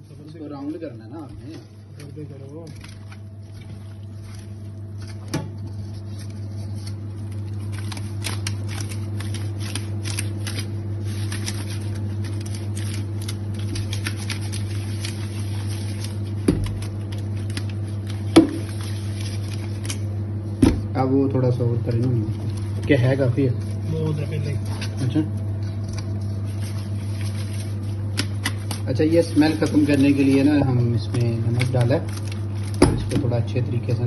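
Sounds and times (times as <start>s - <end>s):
wet squishy fish crackling: 1.2s - 5.4s.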